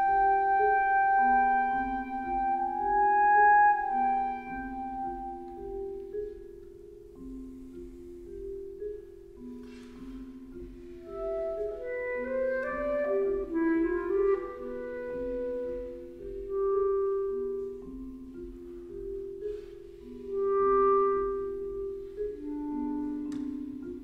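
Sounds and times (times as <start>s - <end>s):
clarinet long notes: 0.0s - 6.2s, 11.0s - 18.8s, 20.3s - 24.0s
vibraphone notes ringing: 0.0s - 24.0s.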